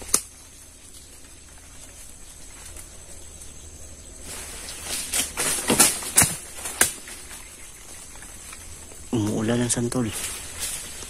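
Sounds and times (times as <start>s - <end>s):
fruit thudding on ground: 5.0s - 7.2s.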